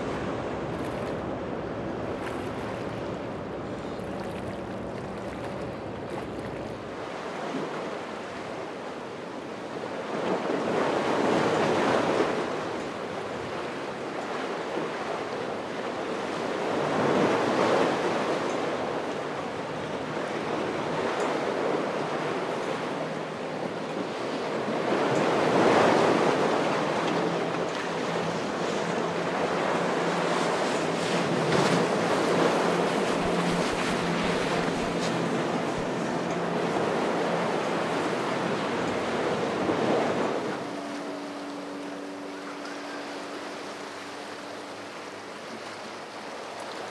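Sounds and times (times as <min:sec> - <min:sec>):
ocean surf breaking: 0:00.0 - 0:08.4, 0:20.2 - 0:46.9.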